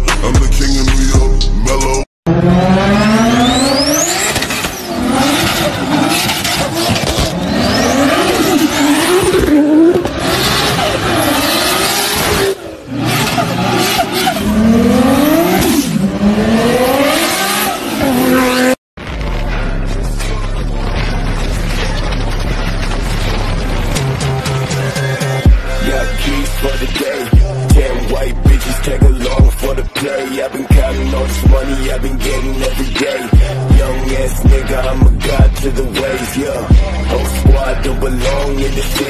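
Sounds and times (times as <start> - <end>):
cars accelerating hard: 2.3 - 18.8
tyre squeal: 3.3 - 14.6.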